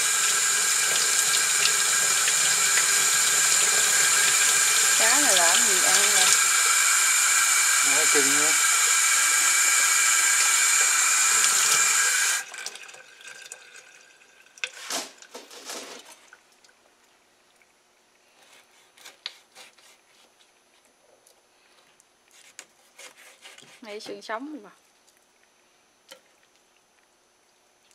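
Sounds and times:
tap water running into sink: 0.0 - 15.3.

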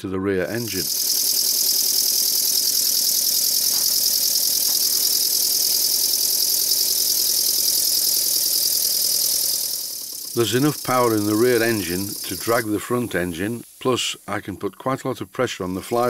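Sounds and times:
model steam engine exhaust beats: 0.6 - 16.0
hiss of escaping air: 0.8 - 14.4.

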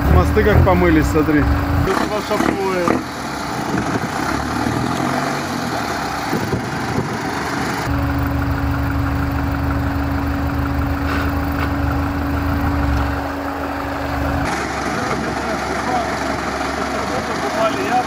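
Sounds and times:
truck engine idling: 0.0 - 18.0
constant tone: 7.8 - 18.0.

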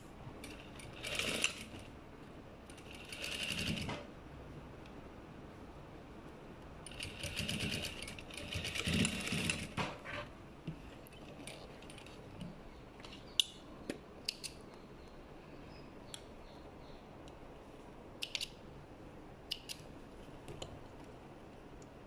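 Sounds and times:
sewing machine stitching: 0.4 - 1.9, 2.7 - 4.1, 6.9 - 10.0
sharp clicks: 19.5 - 19.9.

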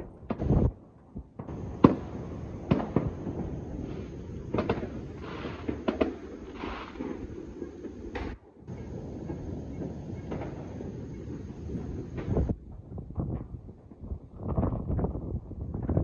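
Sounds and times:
distant firework bangs and pops: 0.0 - 16.0
rumble of distant explosions: 0.0 - 16.0
crackling hisses: 1.4 - 12.6.

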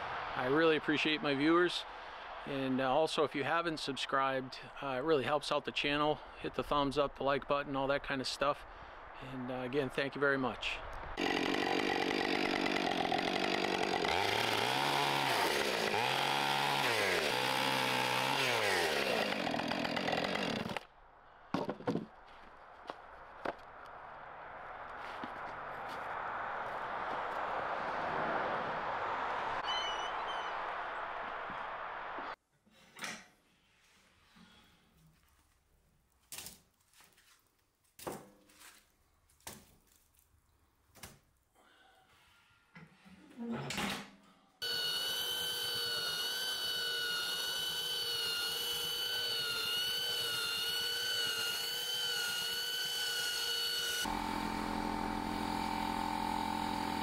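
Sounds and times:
chainsaw cutting wood: 11.2 - 20.9, 44.6 - 57.0.

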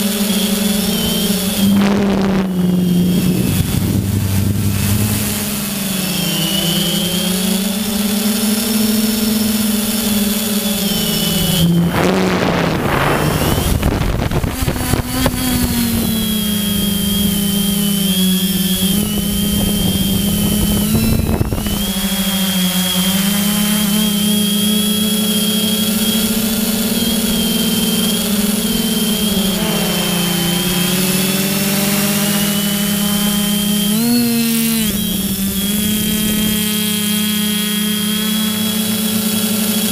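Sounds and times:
drone motor and propellers whining: 0.0 - 39.9
rushing air gust: 2.4 - 6.1, 11.2 - 15.2.

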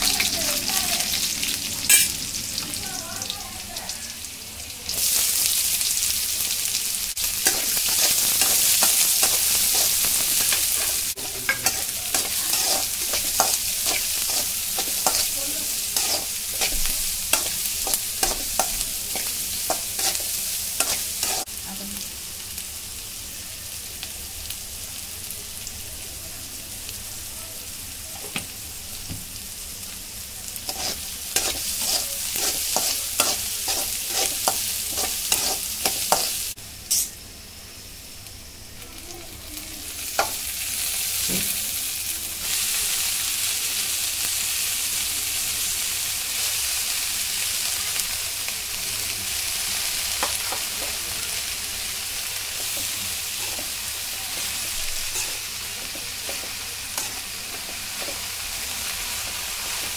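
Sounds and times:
food sizzling in oil: 0.0 - 59.9
spatula scraping a pan: 7.4 - 21.5, 30.6 - 37.1, 52.6 - 58.2.

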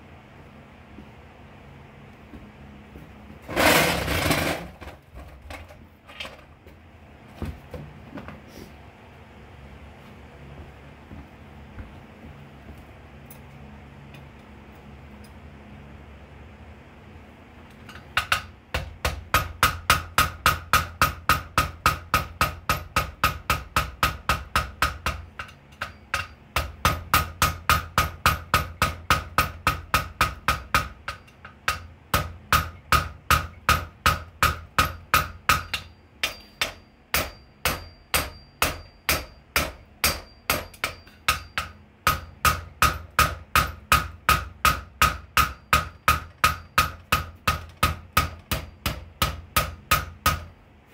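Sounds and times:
hammer striking steel on anvil: 17.8 - 50.6.

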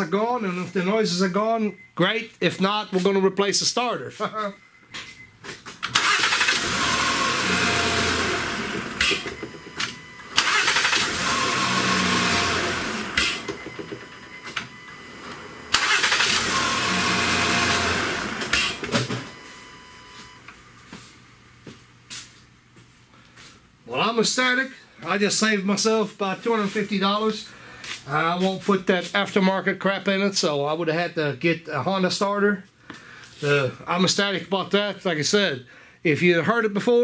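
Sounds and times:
car engine starting: 5.8 - 19.4.

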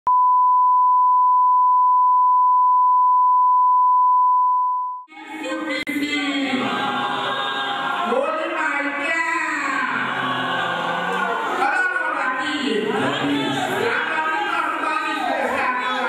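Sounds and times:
voices singing together: 5.1 - 16.0.

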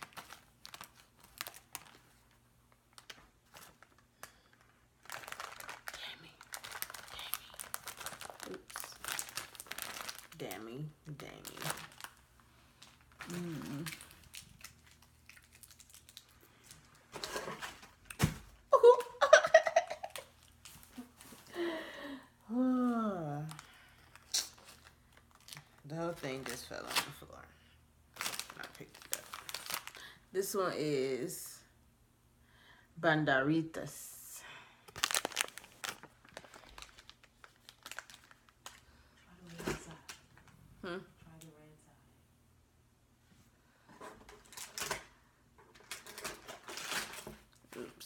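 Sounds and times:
candy packaging crinkling: 0.0 - 21.7, 23.2 - 27.5, 28.1 - 30.6, 34.9 - 40.6, 44.0 - 45.1, 45.7 - 48.0
person humming: 13.2 - 14.0
candy dropping thump: 18.1 - 18.6.

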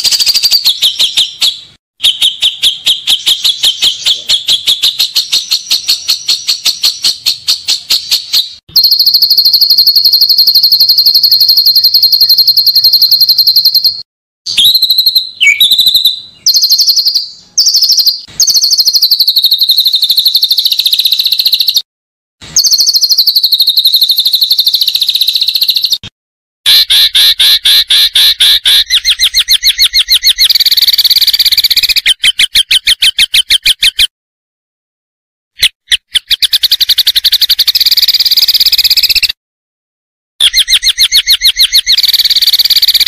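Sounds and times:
songbird singing fast trills: 0.0 - 21.9, 22.5 - 26.1, 26.7 - 34.1, 35.6 - 39.4, 40.4 - 43.0.

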